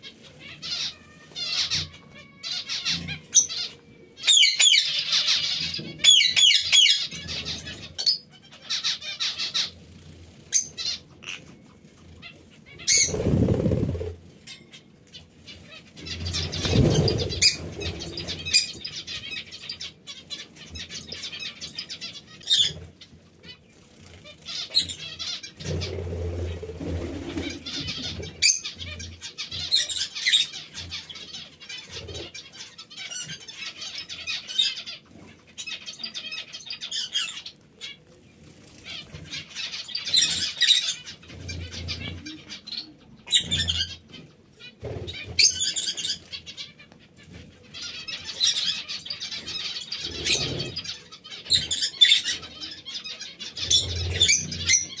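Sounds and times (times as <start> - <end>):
parrots chirping and chattering: 0.0 - 55.0
wing flaps: 12.9 - 14.2, 16.4 - 18.0.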